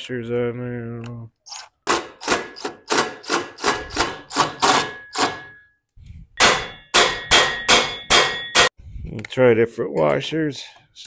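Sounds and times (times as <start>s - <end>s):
metal ringing: 3.8s - 5.7s, 6.4s - 8.8s
impact driver hammering on bolt: 6.4s - 8.7s.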